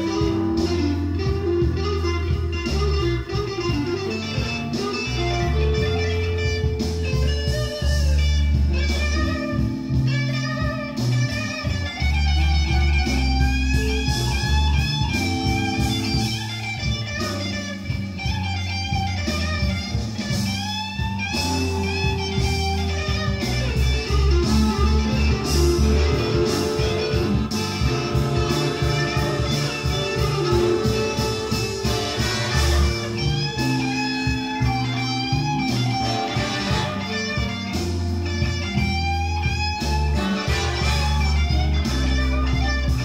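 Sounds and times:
bass line: 0:00.0 - 0:43.0
drums: 0:00.0 - 0:43.0
electric guitar lead lines: 0:00.0 - 0:43.0.

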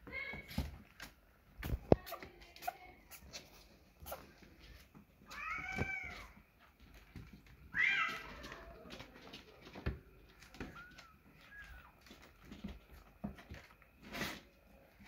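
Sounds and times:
kittens meowing: 0:05.3 - 0:06.4, 0:10.6 - 0:12.1.

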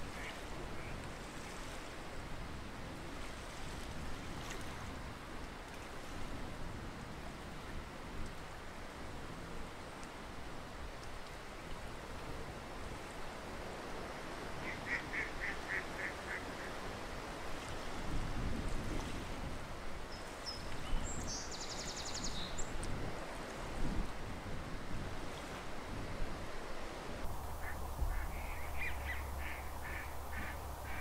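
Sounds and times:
background hiss: 0:27.2 - 0:31.0
ducks calling: 0:27.3 - 0:31.0
low rumbles: 0:27.3 - 0:31.0.

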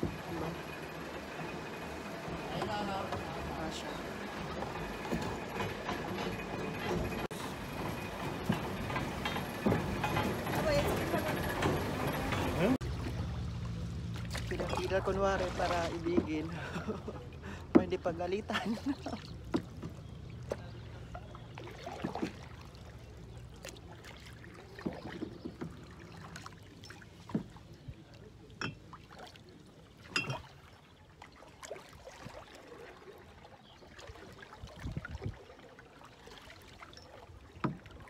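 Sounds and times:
paddle dipping in water: 0:00.0 - 0:18.0, 0:18.6 - 0:38.0
light knocks on canoe: 0:19.5 - 0:20.8.

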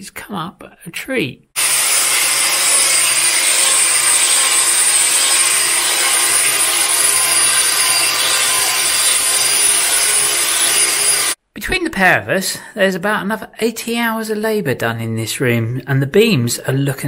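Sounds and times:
orbital sander grinding wood: 0:01.6 - 0:11.4.

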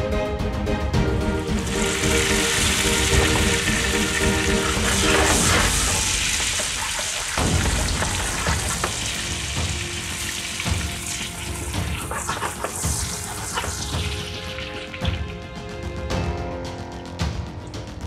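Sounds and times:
tomatoes sizzling in frying pan: 0:01.5 - 0:15.1.

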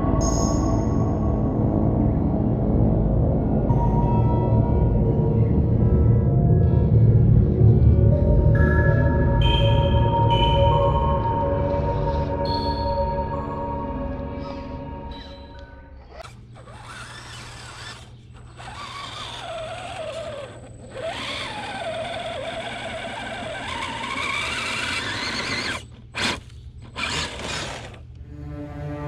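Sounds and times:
electric motor whining: 0:16.0 - 0:28.2.

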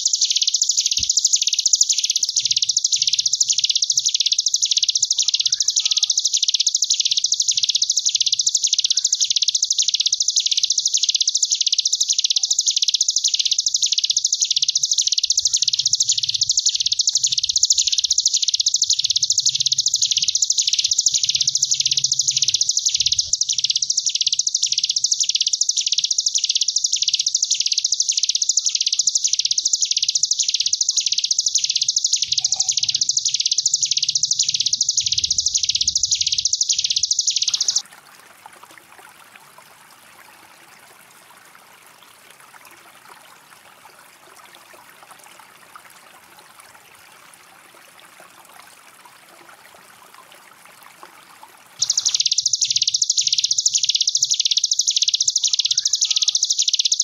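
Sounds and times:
bird singing buzzing trill: 0:00.0 - 0:37.8, 0:51.8 - 0:57.0.

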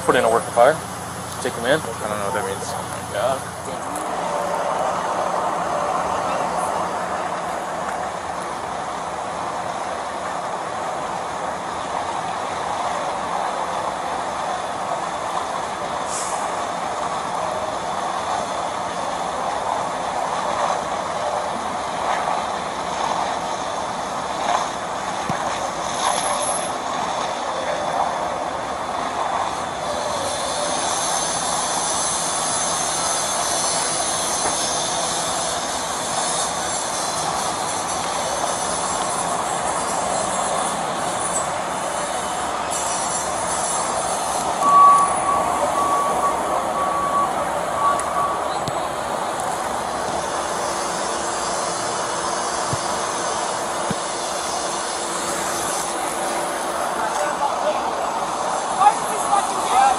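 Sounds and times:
fire roaring: 0:00.0 - 0:59.9
high hiss: 0:29.8 - 0:59.9.

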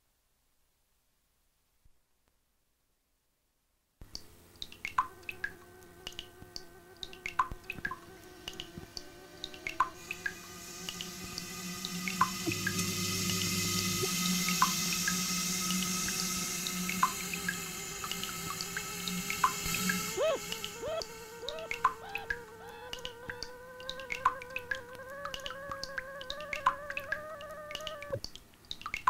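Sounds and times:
hiss: 0:07.7 - 0:28.2
held steady tones: 0:09.9 - 0:28.2.

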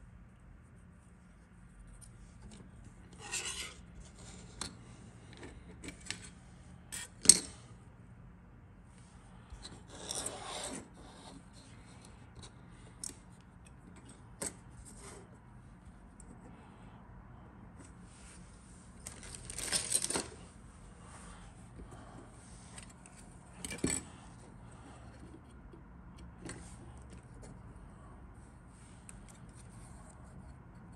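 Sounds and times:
plastic parts scraping on mat: 0:02.4 - 0:07.2, 0:09.6 - 0:13.2.

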